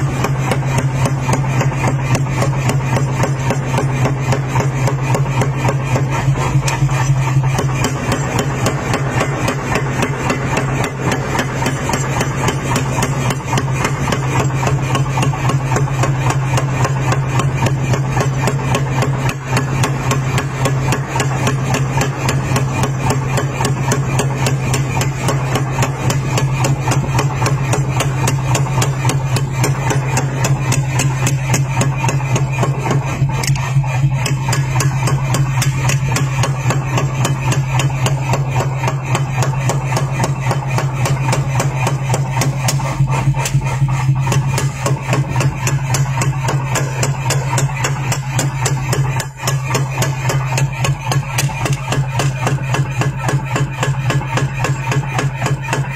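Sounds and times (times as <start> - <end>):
power hammer blows on steel: 0.0 - 55.9
steady low hum: 0.0 - 55.9.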